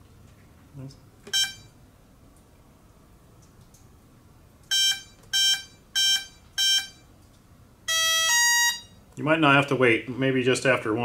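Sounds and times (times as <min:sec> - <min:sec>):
short electronic beeps: 0:01.3 - 0:01.8, 0:04.7 - 0:07.1, 0:07.9 - 0:09.0.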